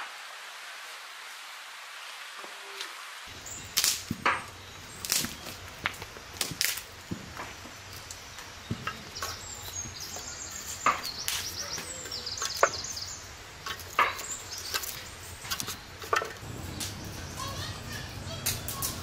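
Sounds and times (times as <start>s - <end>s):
wood fire burning: 2.0s - 19.0s
sticks snapping into fire: 3.7s - 7.4s, 10.8s - 11.6s, 13.6s - 17.1s, 18.4s - 19.0s.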